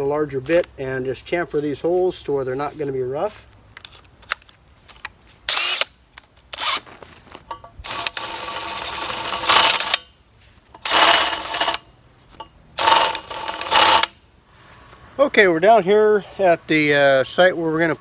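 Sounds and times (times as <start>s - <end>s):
cordless drill running: 7.8s - 10.1s, 10.8s - 11.8s, 12.8s - 14.1s.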